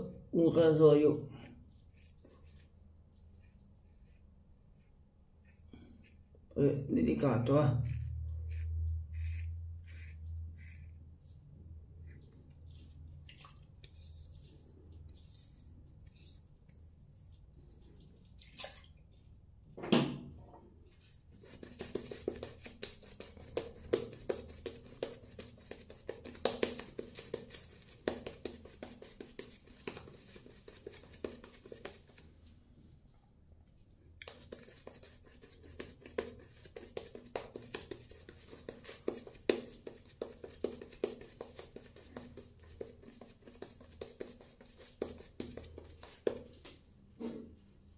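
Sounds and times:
shaving brush scrubbing lather: 1.4s - 4.9s, 6.9s - 18.0s, 21.4s - 32.3s, 34.2s - 46.5s.

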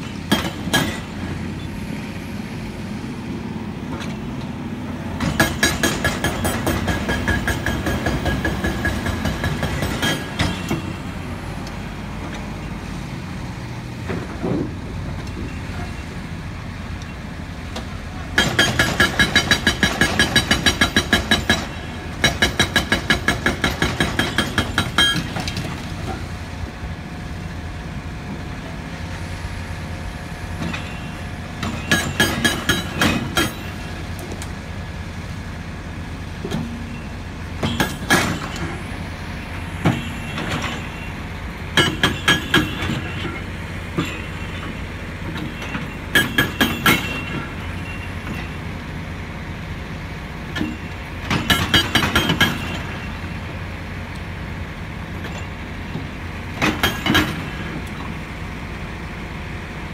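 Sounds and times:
diesel engines running: 0.0s - 59.9s
hydraulic breaker hammering rock: 0.3s - 1.2s, 5.2s - 11.0s, 18.3s - 25.8s, 31.6s - 33.9s, 37.6s - 38.9s, 41.8s - 48.6s, 50.5s - 53.3s, 56.5s - 58.2s.

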